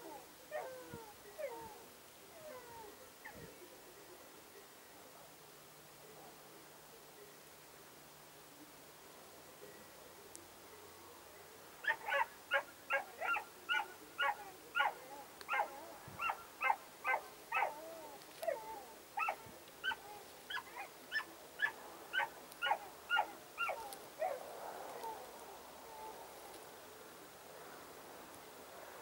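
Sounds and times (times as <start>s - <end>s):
dog yelping: 11.8s - 24.4s.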